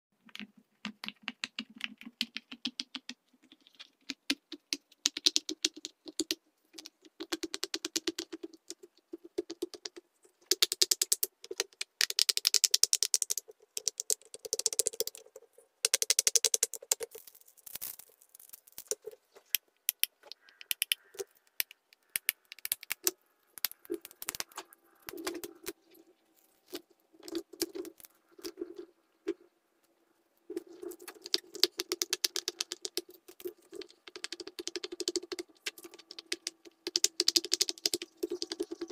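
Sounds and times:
plastic cube being folded: 0.2 - 29.4, 30.5 - 38.9
fidget toy bubbles popping: 4.0 - 25.8, 30.5 - 38.9.

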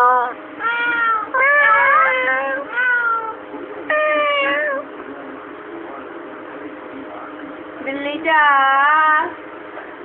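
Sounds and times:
high meow-like calls: 0.0 - 4.8.

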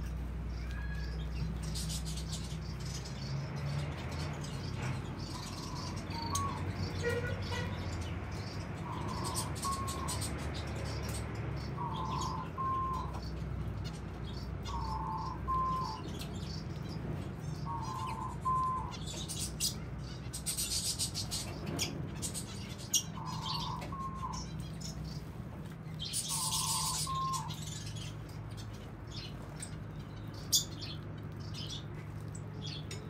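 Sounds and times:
finches chirping: 0.4 - 33.0
two-part whistled call: 11.8 - 13.2, 17.7 - 19.0.

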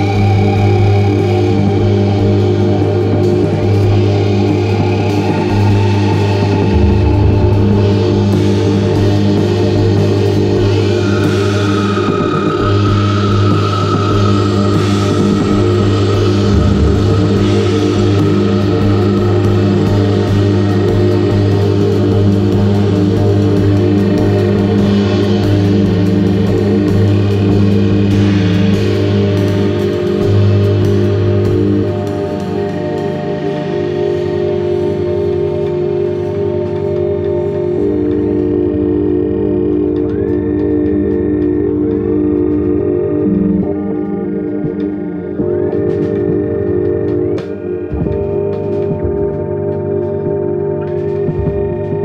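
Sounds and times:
synthesizer droning organ-like tones: 0.0 - 52.0
drum kit playing: 3.2 - 11.6, 12.2 - 32.4.

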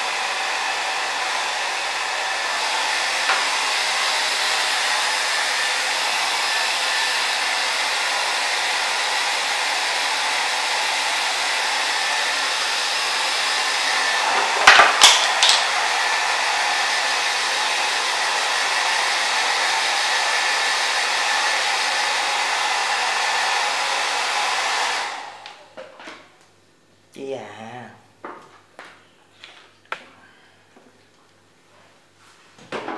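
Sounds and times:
hair dryer running: 0.0 - 25.7.

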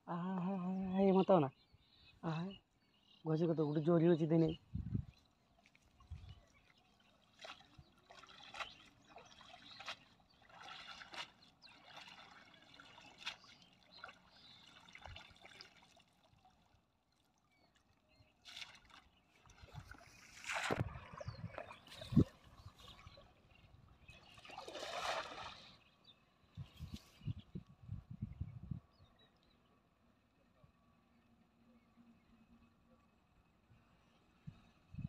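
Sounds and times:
small splashes in water: 5.5 - 25.9
rush of water: 7.3 - 16.3, 24.2 - 25.8.

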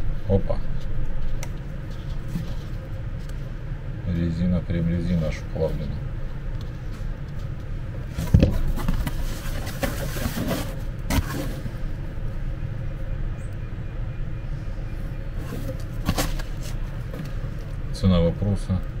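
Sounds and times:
steady low hum: 0.0 - 19.0
cardboard knocks and rustles: 8.1 - 11.5.

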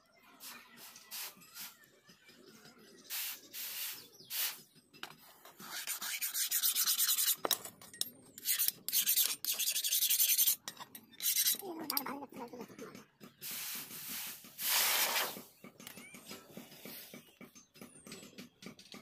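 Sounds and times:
tool rasping against steel blade: 5.5 - 12.0.

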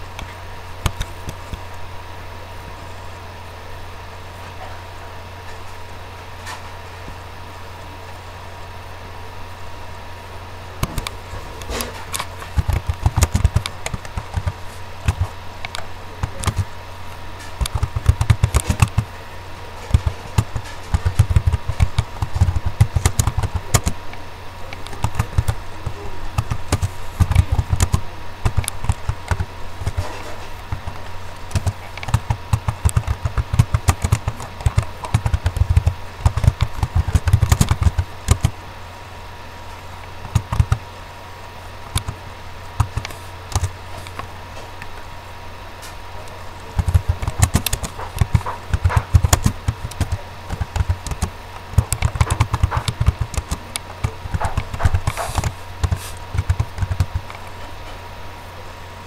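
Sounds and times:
steady low hum: 0.0 - 59.0
keyboard key clicks: 17.6 - 19.1, 19.9 - 24.0, 31.5 - 38.5, 40.2 - 40.8, 42.8 - 44.2, 46.8 - 57.4.

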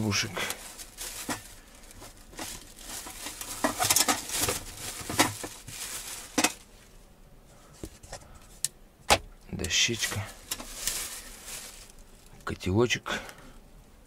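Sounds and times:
plastic bag rustling: 0.0 - 7.0, 9.6 - 12.6.

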